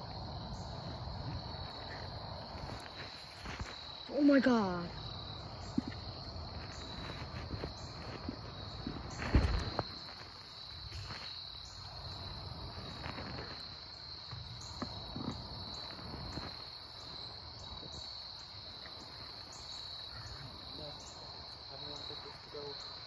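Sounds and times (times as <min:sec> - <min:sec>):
insects trilling: 0:00.0 - 0:23.0.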